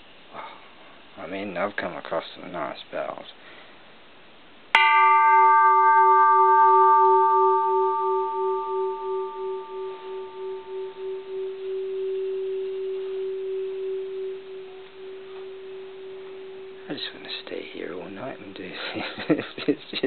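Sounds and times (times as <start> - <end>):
temple bell ringing: 4.8 - 19.4.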